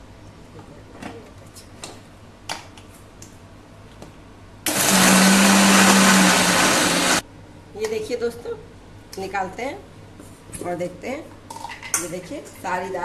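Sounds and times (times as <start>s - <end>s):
mixer grinder running: 4.7s - 7.2s.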